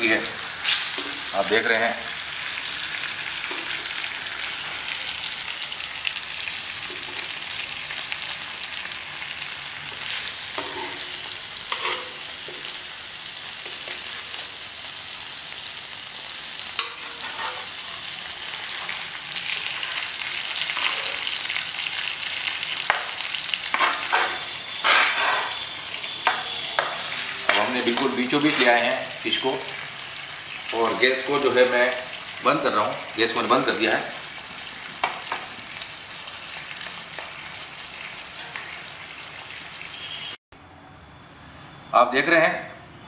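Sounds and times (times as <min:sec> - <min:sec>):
fish sizzling in a pan: 0:00.0 - 0:40.4
metal spoon scraping a pan: 0:10.0 - 0:12.7, 0:16.8 - 0:21.4, 0:22.8 - 0:28.8, 0:38.2 - 0:38.8.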